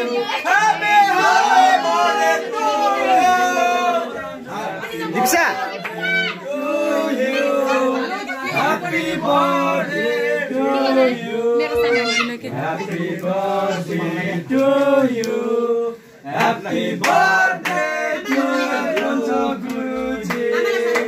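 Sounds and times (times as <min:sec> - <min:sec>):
people singing long held notes: 0:05.9 - 0:21.0.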